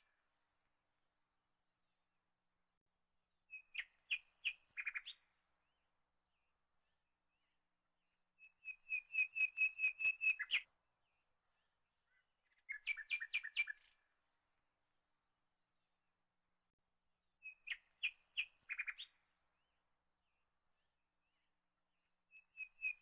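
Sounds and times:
bird chirping: 3.5s - 14.1s, 17.4s - 23.0s.

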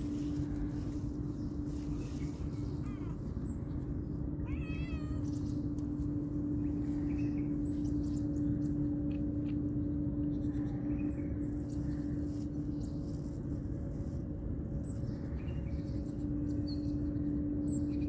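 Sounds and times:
steady low hum: 0.0s - 18.0s
kitten meowing: 4.5s - 5.3s.

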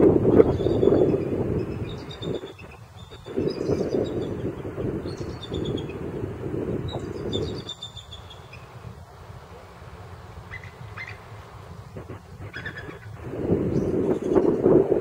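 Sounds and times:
low rushing noise: 0.0s - 15.0s
small birds chirping: 0.3s - 6.1s, 6.7s - 9.0s, 10.4s - 15.0s.

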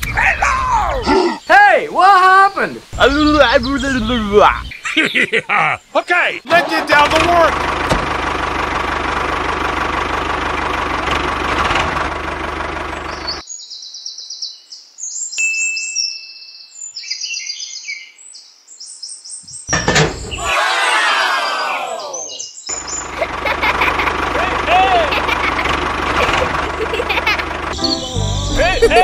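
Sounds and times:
birds chirping: 0.0s - 11.4s, 12.7s - 29.0s
tractor engine running: 6.5s - 13.4s, 19.7s - 20.5s, 22.7s - 29.0s
thump: 7.8s - 8.1s, 19.7s - 20.4s.

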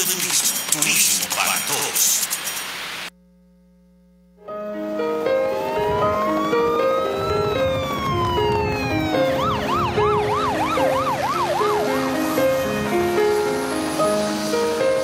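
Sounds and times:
background music: 4.4s - 15.0s
ambulance siren: 5.0s - 15.0s.

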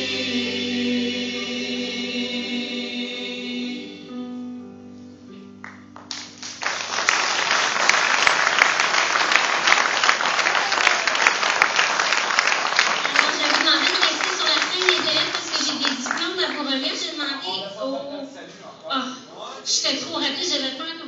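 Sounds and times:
choir singing a chord: 0.0s - 5.4s
audience applause: 6.0s - 16.5s.

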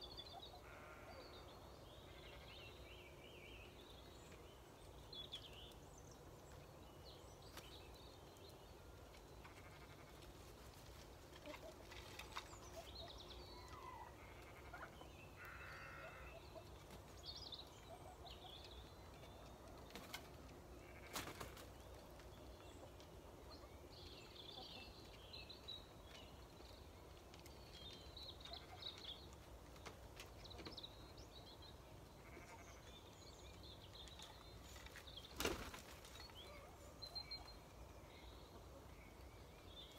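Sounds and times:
small birds chirping: 0.0s - 39.9s
bleat-like animal call: 0.6s - 1.2s, 9.5s - 10.1s, 14.1s - 16.3s, 20.8s - 21.2s.

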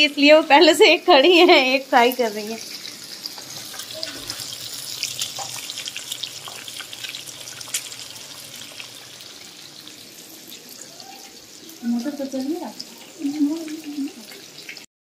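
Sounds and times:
fish frying in hot oil: 0.0s - 14.9s.

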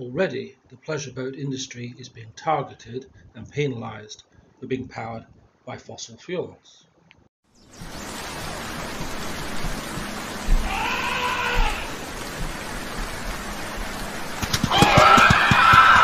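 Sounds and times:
steady rain hiss: 7.5s - 16.0s
drawn-out animal cry: 10.5s - 12.0s
animal calls: 10.6s - 12.0s.

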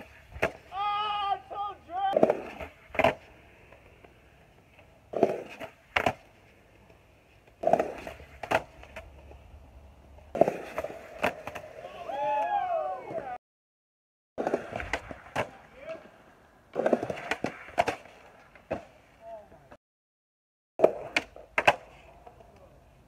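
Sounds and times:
skateboard landing on concrete: 0.0s - 0.7s, 2.1s - 3.8s, 4.8s - 6.4s, 7.5s - 9.3s, 10.3s - 11.8s, 14.4s - 16.0s, 16.7s - 19.0s, 20.8s - 22.1s
skateboard tail popping: 2.1s - 9.4s, 14.4s - 15.7s, 16.7s - 19.0s, 20.8s - 22.6s.

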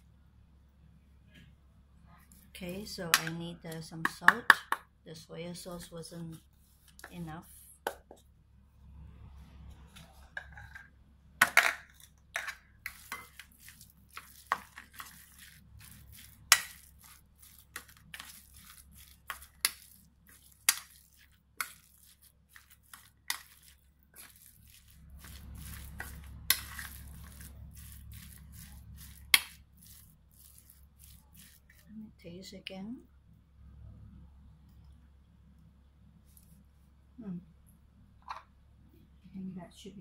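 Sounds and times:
wet meat squelching: 12.9s - 31.9s.

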